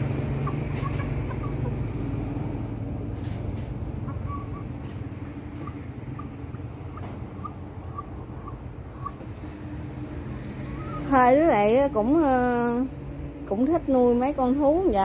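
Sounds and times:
chickens chirping softly: 0.0 - 11.4
low mechanical hum: 0.0 - 15.0.

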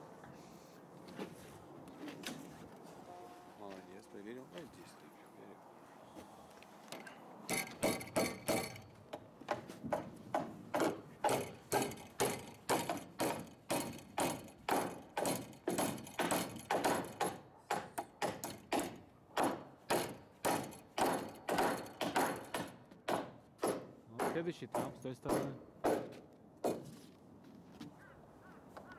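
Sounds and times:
hammer driving nails into wood: 6.9 - 27.0.

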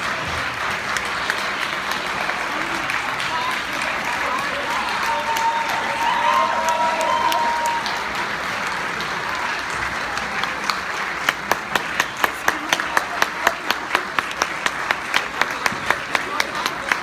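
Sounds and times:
audience applauding: 0.0 - 17.0
sharp close hand claps: 6.6 - 17.0.

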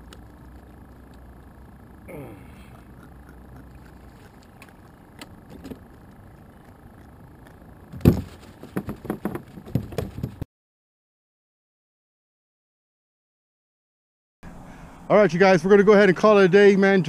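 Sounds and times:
fish knocking and rattling in kayak: 8.0 - 10.4.

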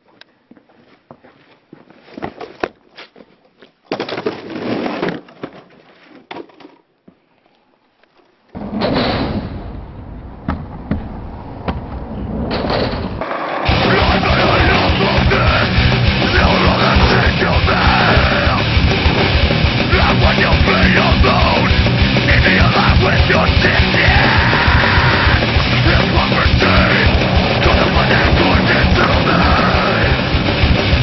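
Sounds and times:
skateboard wheels rolling: 8.2 - 13.7
loud heavy rock music: 13.6 - 31.0.

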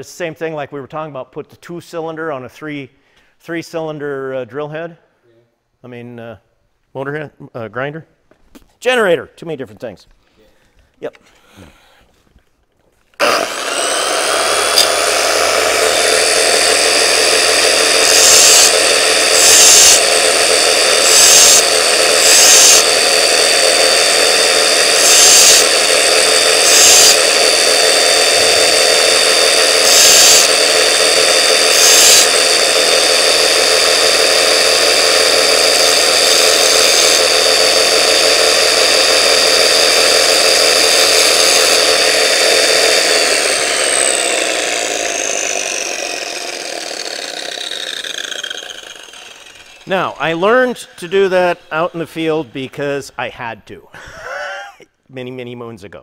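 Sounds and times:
angle grinder whining: 13.1 - 53.2
drill bit grinding on disc: 13.2 - 53.0.

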